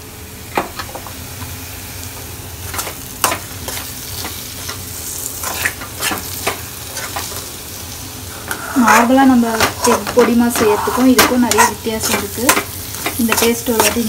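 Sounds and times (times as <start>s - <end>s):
food sizzling: 0.0s - 14.0s
metal spatula scraping a pan: 2.7s - 7.5s, 8.5s - 14.0s.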